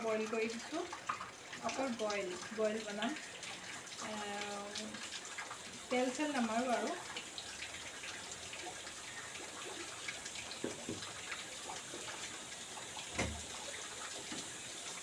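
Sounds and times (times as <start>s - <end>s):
running water hissing: 0.0s - 15.0s
knocks on wooden cupboard: 13.2s - 13.4s.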